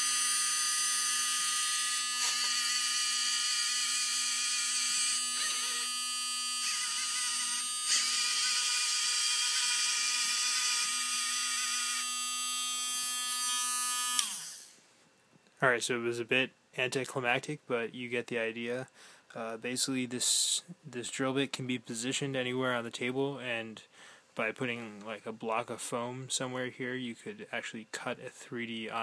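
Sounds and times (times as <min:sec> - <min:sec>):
motors whirring: 0:00.0 - 0:12.3, 0:12.9 - 0:14.7
rotary tool high-pitched whine: 0:00.0 - 0:14.8.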